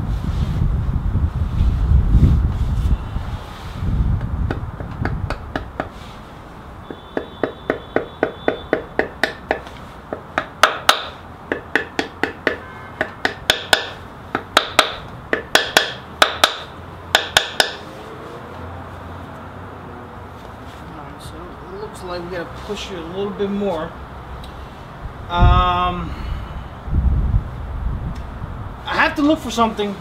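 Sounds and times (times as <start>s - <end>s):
hammer tapping on metal: 4.5s - 5.9s, 6.8s - 17.9s.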